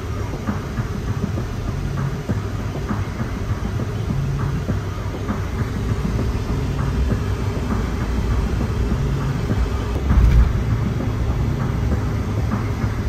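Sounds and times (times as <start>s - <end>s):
car road noise rumble: 0.0s - 13.0s
car bump: 2.2s - 12.8s.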